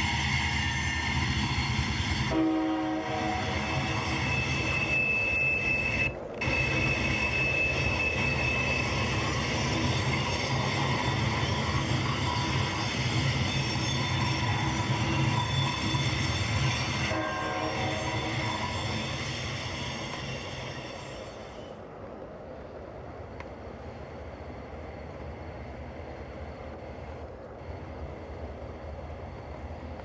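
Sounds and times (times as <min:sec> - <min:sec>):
high steady tone: 0:00.0 - 0:21.0
freight train rumbling past: 0:00.0 - 0:30.0.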